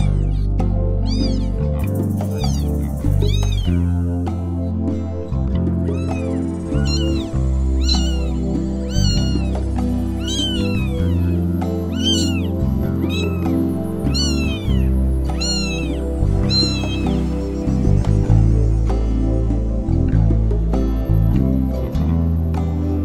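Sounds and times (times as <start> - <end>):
kitten mewing: 0.0 - 4.0, 5.8 - 17.4
background music: 0.0 - 23.0.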